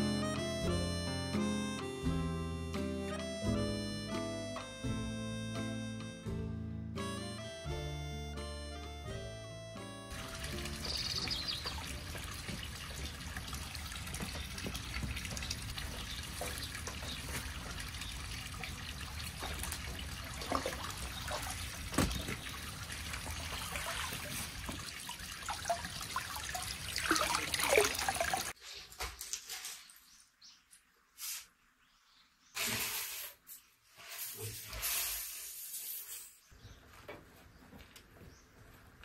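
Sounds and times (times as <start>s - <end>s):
water splashes: 10.1s - 28.6s
water trickling: 10.1s - 28.6s.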